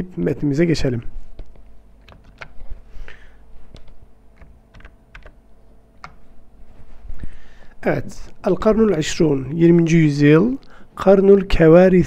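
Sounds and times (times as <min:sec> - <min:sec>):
faint low hum: 0:00.0 - 0:12.0
computer keys clicking: 0:01.4 - 0:02.7, 0:03.7 - 0:05.4, 0:06.0 - 0:06.2.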